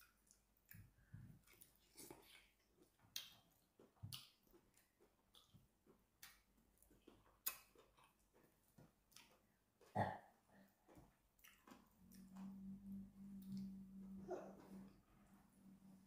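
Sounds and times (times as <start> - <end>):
lip smacks and chewing clicks: 0.0 - 8.5, 10.9 - 12.5.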